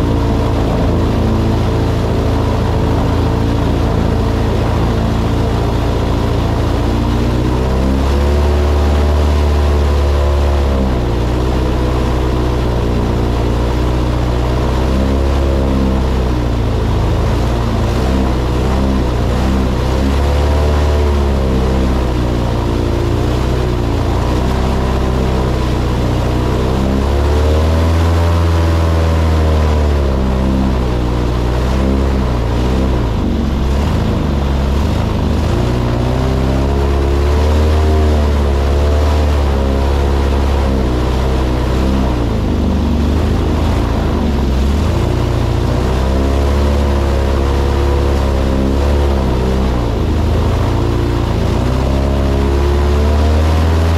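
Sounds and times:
airboat engine and propeller: 0:00.0 - 0:53.9.

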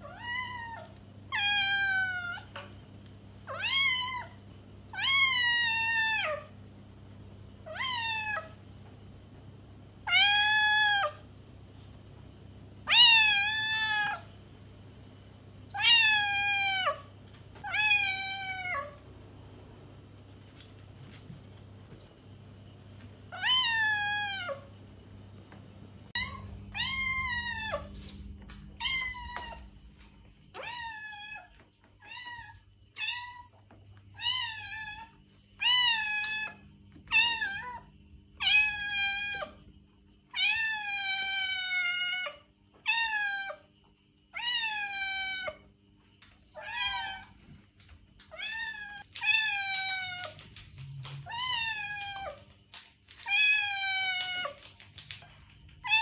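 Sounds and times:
cat meowing: 0:00.0 - 0:02.7, 0:03.5 - 0:06.5, 0:10.0 - 0:11.2, 0:12.8 - 0:14.3, 0:15.7 - 0:19.0, 0:23.3 - 0:24.7, 0:26.1 - 0:28.2, 0:28.8 - 0:29.7, 0:51.0 - 0:52.4.

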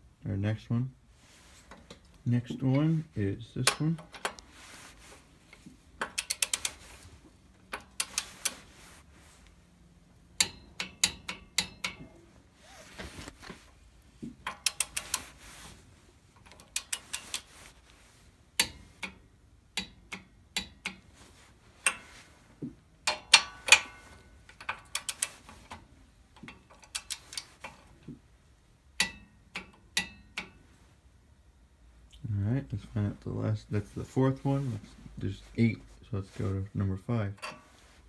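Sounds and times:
ratchet wrench clicking: 0:06.0 - 0:06.8, 0:07.7 - 0:08.6, 0:14.4 - 0:15.2, 0:16.4 - 0:17.5, 0:24.5 - 0:25.4, 0:26.6 - 0:27.8.

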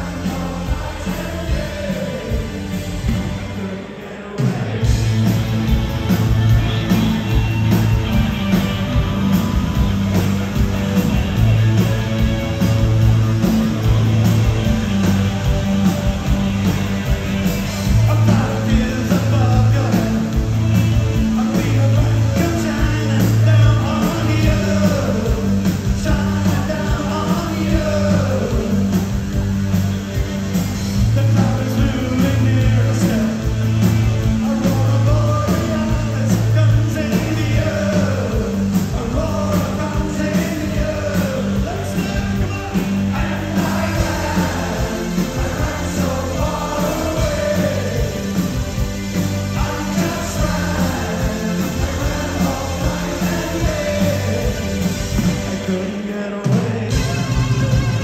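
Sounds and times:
lead singing: 0:00.0 - 0:29.6, 0:31.0 - 0:58.0
steady bass line: 0:00.0 - 0:55.8, 0:56.9 - 0:58.0
rock band playing: 0:00.0 - 0:58.0
drum beat: 0:04.5 - 0:55.6.

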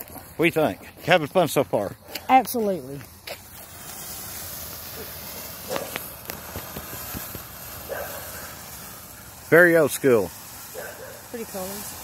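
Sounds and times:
firework fountain hissing: 0:00.0 - 0:12.0
crackles and pops: 0:01.9 - 0:10.8.

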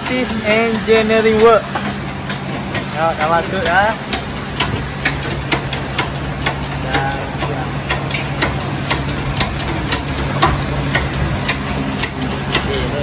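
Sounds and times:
hydraulic pump humming: 0:00.0 - 0:13.0
sharp regular clicks: 0:01.0 - 0:12.9.

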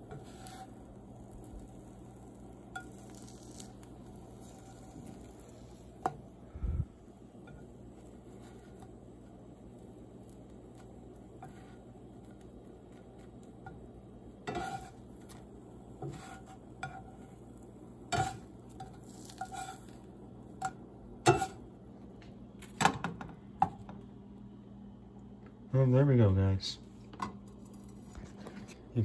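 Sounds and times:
spatula scraping metal frying pan: 0:00.0 - 0:00.9, 0:02.7 - 0:06.2, 0:11.4 - 0:11.9, 0:14.4 - 0:15.4, 0:16.0 - 0:17.4, 0:18.1 - 0:20.0, 0:20.6 - 0:21.6.

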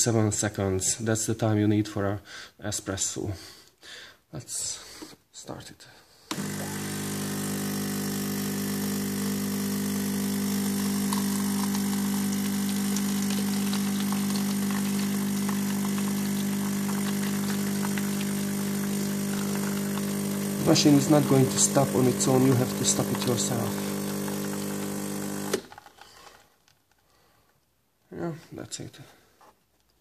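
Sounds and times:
espresso machine pump buzzing: 0:06.3 - 0:25.7.

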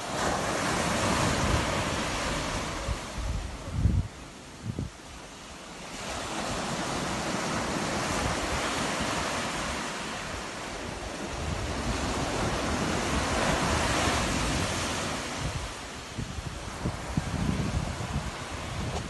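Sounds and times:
sea surf breaking on beach: 0:00.0 - 0:19.0.

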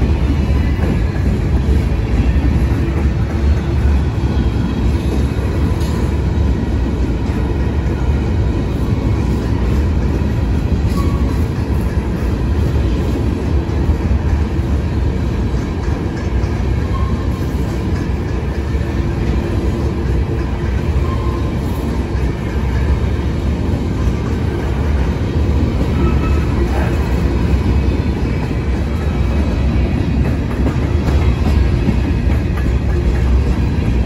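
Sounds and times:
freight train wheels on rails: 0:00.0 - 0:34.0.

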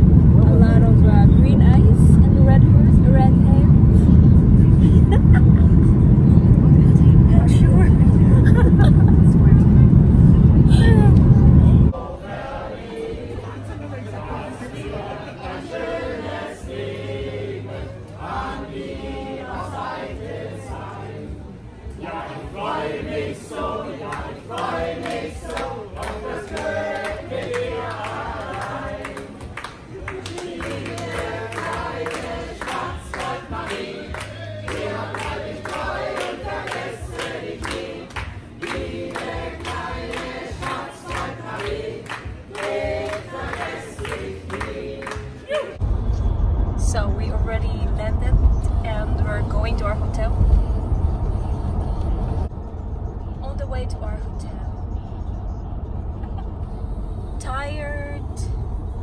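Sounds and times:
choir singing a cappella: 0:11.6 - 0:45.8
steady hand claps: 0:24.1 - 0:45.4.

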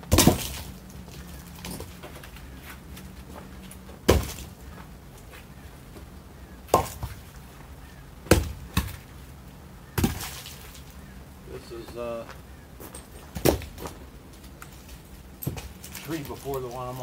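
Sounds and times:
logs knocking onto log pile: 0:00.0 - 0:00.8, 0:04.0 - 0:04.5, 0:06.7 - 0:07.2, 0:10.0 - 0:10.8, 0:13.3 - 0:14.0.

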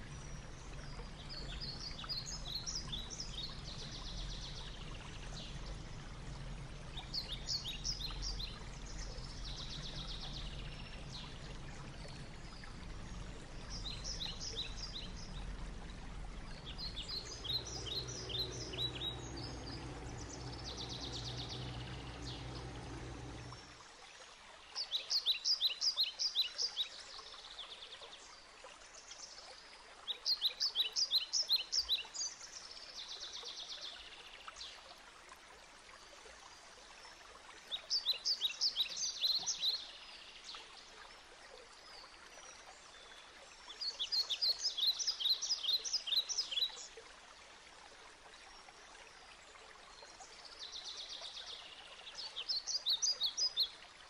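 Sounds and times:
low hum: 0:00.0 - 0:23.9
faint steady hiss: 0:00.0 - 0:54.0
bird song high chirping: 0:06.9 - 0:23.7.

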